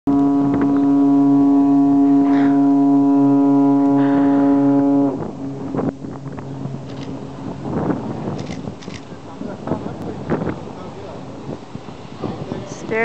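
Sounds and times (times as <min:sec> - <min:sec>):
ferry horn blast: 0:00.1 - 0:08.1
wind noise: 0:00.1 - 0:13.0.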